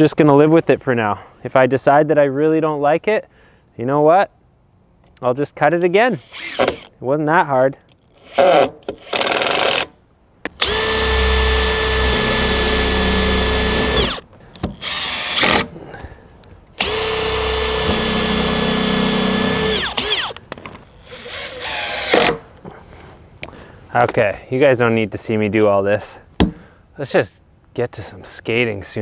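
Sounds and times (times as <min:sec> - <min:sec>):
cordless drill boring: 0:06.2 - 0:06.9, 0:10.6 - 0:15.7, 0:16.8 - 0:22.4.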